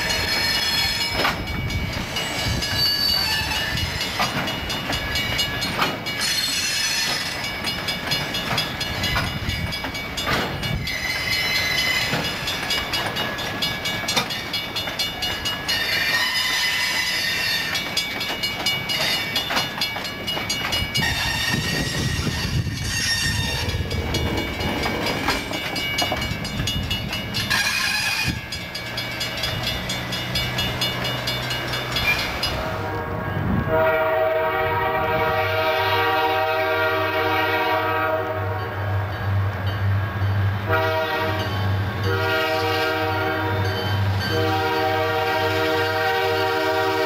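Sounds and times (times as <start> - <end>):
freight cars rolling with clatter: 0.0 - 32.7
train horn blast: 32.6 - 38.8, 40.6 - 47.0.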